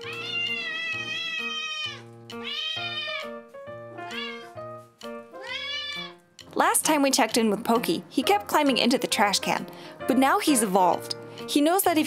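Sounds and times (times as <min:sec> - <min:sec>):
cat meowing loudly: 0:00.0 - 0:03.3, 0:04.1 - 0:04.6, 0:05.4 - 0:06.2.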